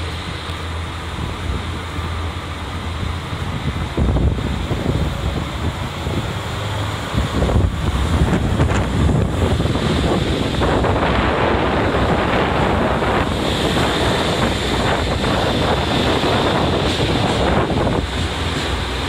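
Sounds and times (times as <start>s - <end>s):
diesel train passing: 0.0s - 19.0s
wind on microphone: 1.0s - 19.0s.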